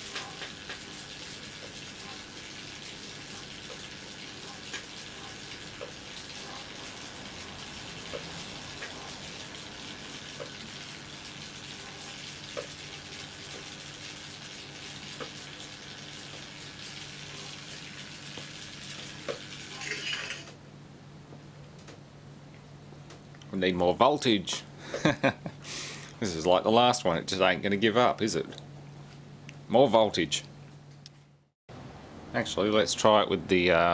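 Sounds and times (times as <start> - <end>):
electric arc sizzling: 0.0 - 20.5
low electrical hum: 0.0 - 33.9.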